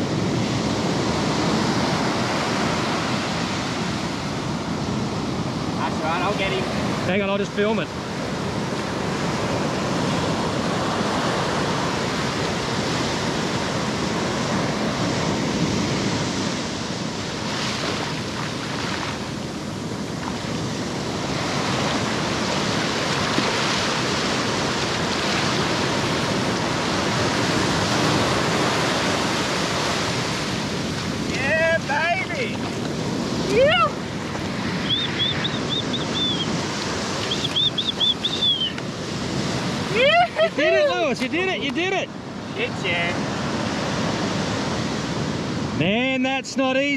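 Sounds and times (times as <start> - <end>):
ocean surf breaking on beach: 0.0 - 46.9.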